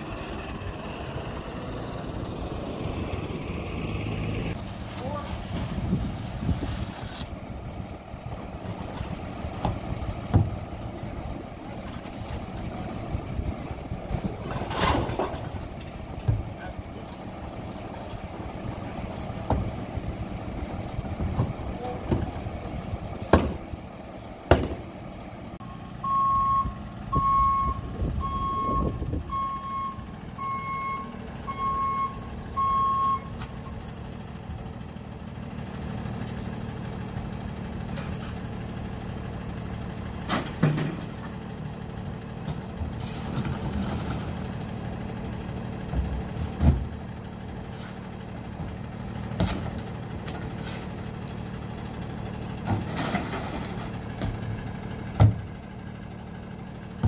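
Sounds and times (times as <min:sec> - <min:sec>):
truck engine idling: 0:00.0 - 0:57.0
truck backup alarm beeping: 0:25.6 - 0:34.2.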